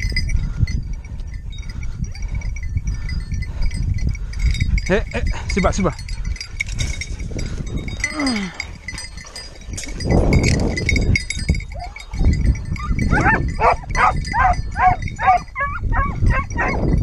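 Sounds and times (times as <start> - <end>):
collar bells tinkling: 0.0 - 17.0
wind or brush rustle: 0.0 - 17.0
hounds whining and yelping: 11.7 - 17.0.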